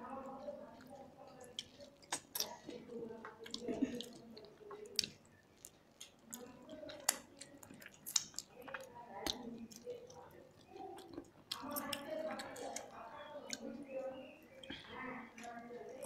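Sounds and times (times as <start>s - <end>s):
chewing and wet mouth sounds: 0.3s - 16.0s.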